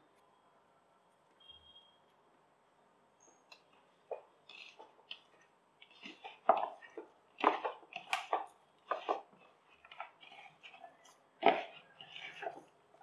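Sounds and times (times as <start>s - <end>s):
hand kneading potato mixture: 3.1s - 13.0s.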